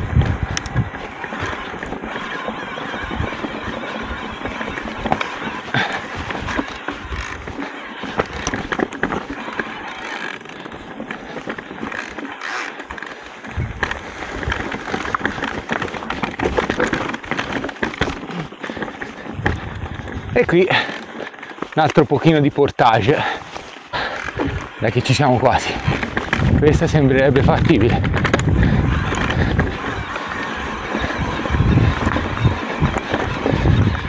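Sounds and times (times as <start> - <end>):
gravel crunching: 0.0 - 34.0.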